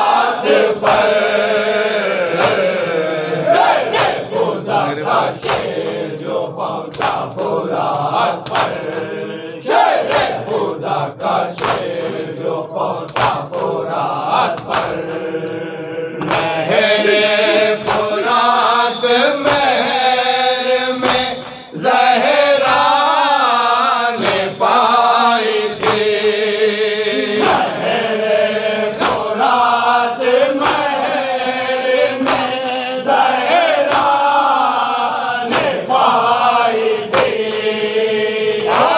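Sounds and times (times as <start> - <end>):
lead reciter chanting: 0.0 - 38.9
men chanting a lament in unison: 0.0 - 38.9
hands beating on chests: 2.2 - 2.8, 3.9 - 4.2, 6.9 - 9.1, 11.2 - 13.6, 16.2 - 16.6, 28.9 - 29.4.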